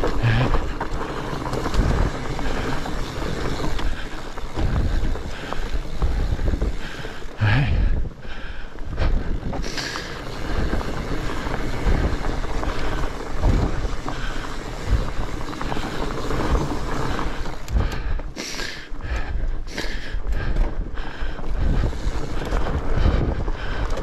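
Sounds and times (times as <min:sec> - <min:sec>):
heavy breathing: 0:00.0 - 0:01.2, 0:01.8 - 0:24.0
bike tyre rumble and knocks: 0:00.0 - 0:24.0
wind rushing over microphone: 0:01.6 - 0:18.2.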